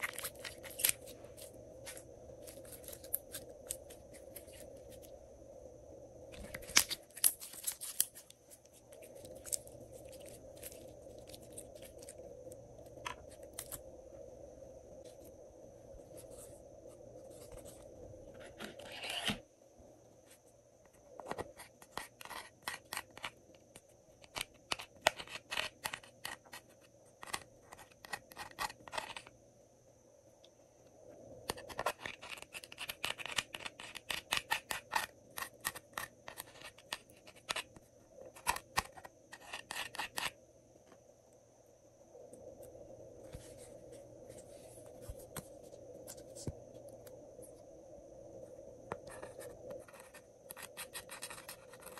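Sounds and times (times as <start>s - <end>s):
metal spatula scraping plastic: 18.3s - 19.4s.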